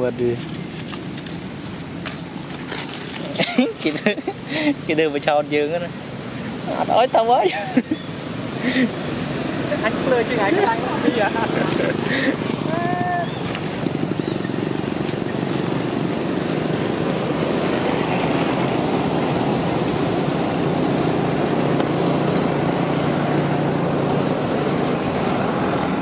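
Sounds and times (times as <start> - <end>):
engine running: 6.0 - 26.0.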